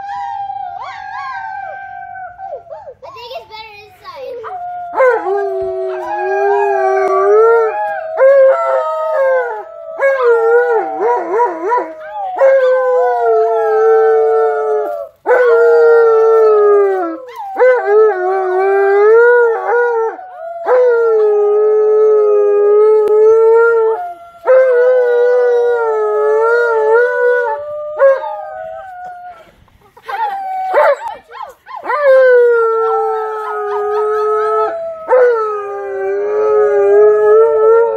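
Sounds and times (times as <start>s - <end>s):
children imitating howls: 0.0s - 3.0s, 4.3s - 37.9s
dog howling: 0.0s - 3.0s, 4.4s - 29.5s, 30.1s - 37.9s.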